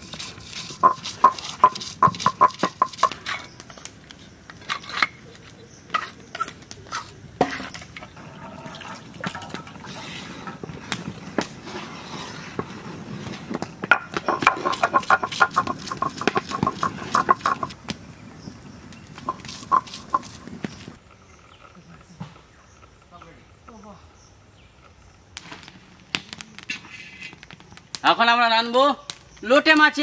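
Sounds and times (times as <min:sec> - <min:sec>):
stone roller knocking on stone slab: 0:00.0 - 0:03.4, 0:07.4 - 0:10.6, 0:13.5 - 0:17.8, 0:19.2 - 0:21.0
stone scraping: 0:00.0 - 0:17.9, 0:18.9 - 0:21.0.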